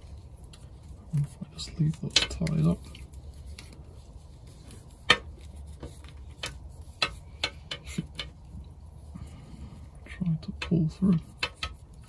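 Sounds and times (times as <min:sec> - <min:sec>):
cable clicking and tapping: 0:04.5 - 0:08.8, 0:10.5 - 0:12.0.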